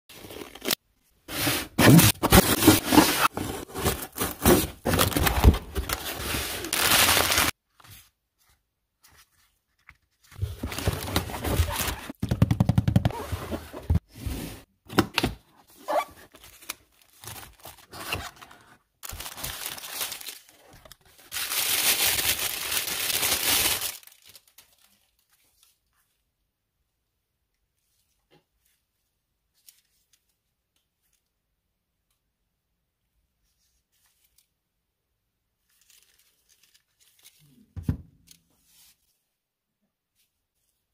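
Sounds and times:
wrapping tearing and crinkling: 1.8s - 7.6s, 10.4s - 12.2s, 19.0s - 25.7s, 35.6s - 37.6s.

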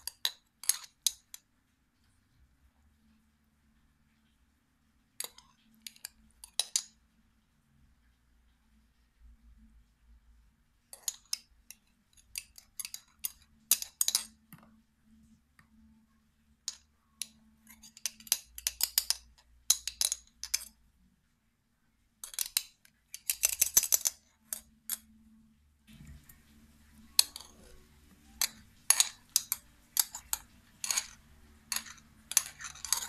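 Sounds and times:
metal spoon scraping glass jar: 17.2s - 20.7s, 27.0s - 33.0s.

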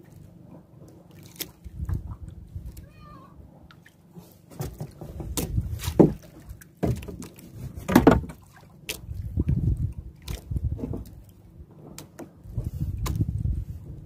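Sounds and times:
water rumble: 0.0s - 14.0s
wind: 0.0s - 14.0s
knocks on wooden boat: 4.5s - 7.3s, 7.9s - 8.4s.

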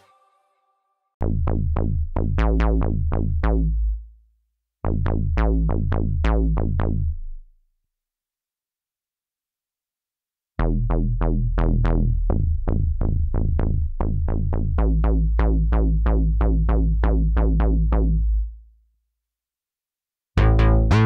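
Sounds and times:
plucked synth bass pattern: 1.2s - 3.9s, 4.9s - 7.2s, 10.6s - 18.5s, 20.4s - 21.0s
bright synth bass: 1.2s - 4.0s, 4.9s - 7.2s, 10.6s - 18.5s, 20.4s - 21.0s.

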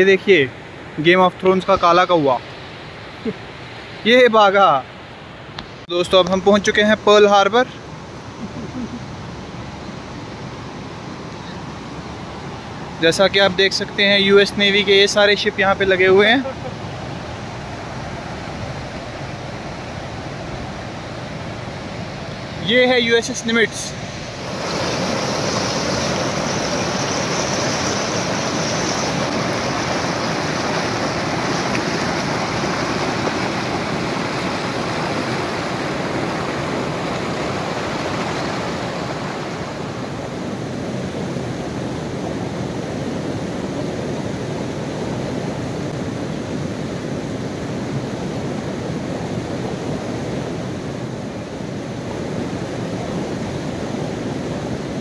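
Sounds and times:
river rushing over rocks: 9.2s - 55.0s.

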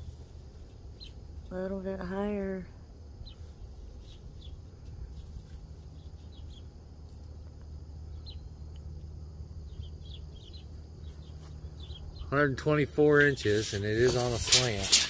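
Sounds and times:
steady low rumble: 0.0s - 14.6s
high bird chirps: 9.6s - 12.5s.

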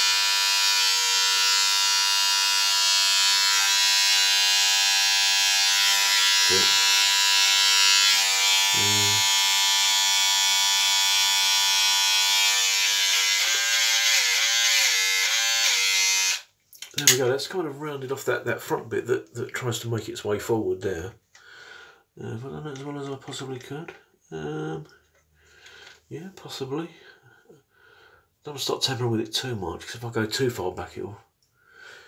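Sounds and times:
electric shaver buzzing: 0.0s - 16.5s.

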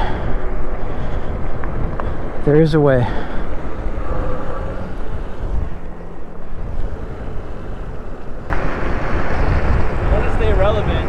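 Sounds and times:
road noise: 0.0s - 11.0s
wind buffeting microphone: 0.0s - 11.0s.

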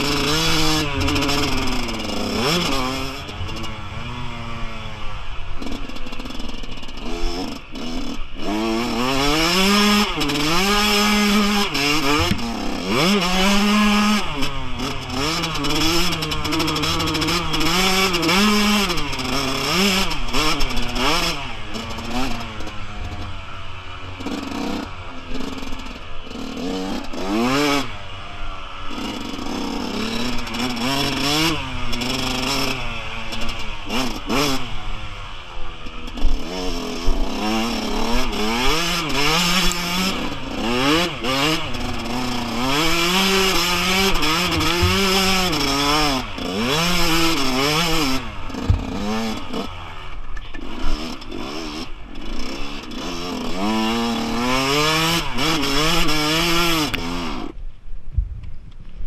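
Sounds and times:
dirt bike engine revving: 0.0s - 57.6s
wind and ground rumble: 57.6s - 59.0s.

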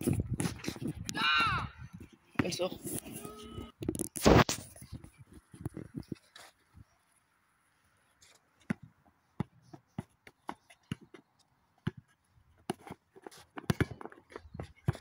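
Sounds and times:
football taps and thuds on dirt: 0.0s - 2.8s, 8.6s - 15.0s.

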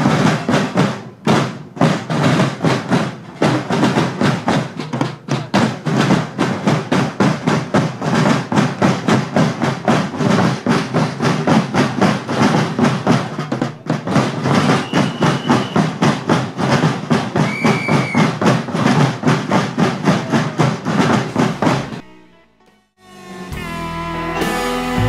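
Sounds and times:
drummers beating field drums: 0.0s - 22.2s.

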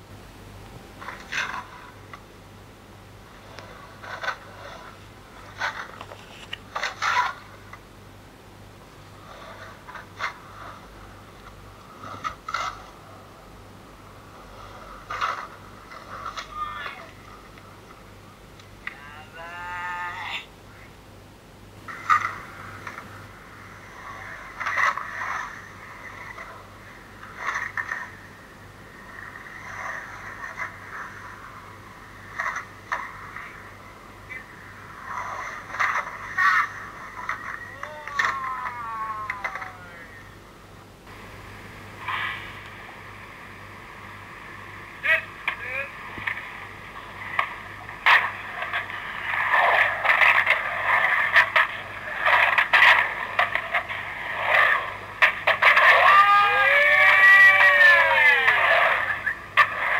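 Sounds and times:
steady low hum: 0.0s - 59.9s
skateboard wheels rolling on concrete: 29.0s - 39.8s, 46.1s - 59.9s.

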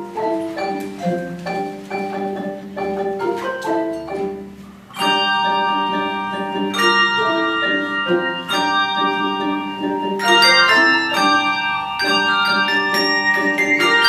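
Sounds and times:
handbell choir ringing chords: 4.9s - 14.0s.

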